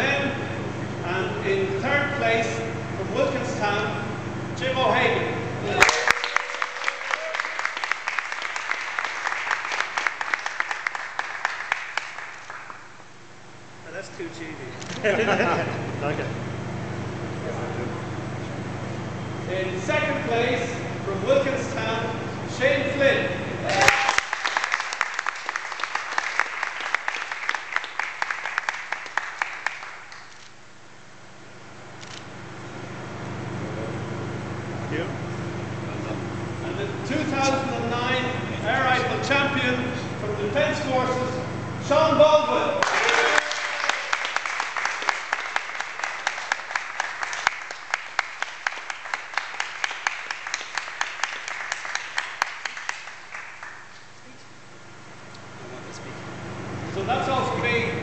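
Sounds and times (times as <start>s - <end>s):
audience applauding: 5.8s - 12.9s, 23.7s - 30.5s, 42.8s - 54.0s.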